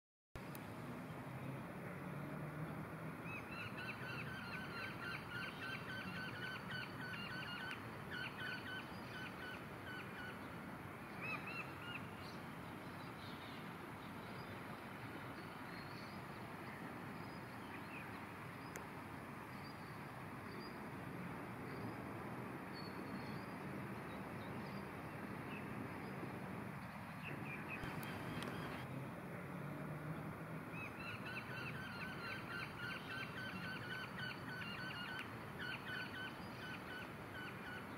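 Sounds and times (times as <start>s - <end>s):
outdoor background noise: 0.4s - 37.9s
small birds chirping: 27.3s - 28.9s.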